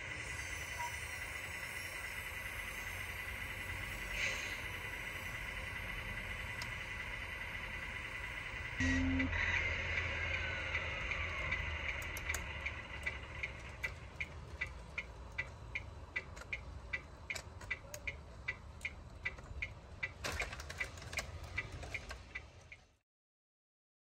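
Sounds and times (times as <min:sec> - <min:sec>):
rapid even ticking: 0:04.7 - 0:22.9
sharp clicks: 0:10.7 - 0:22.8.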